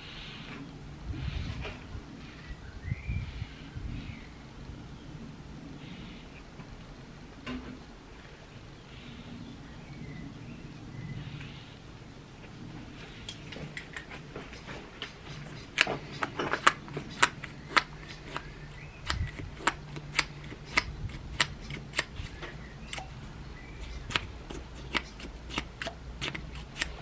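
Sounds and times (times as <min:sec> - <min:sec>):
fuel pump clicks and pops: 0:15.0 - 0:23.1.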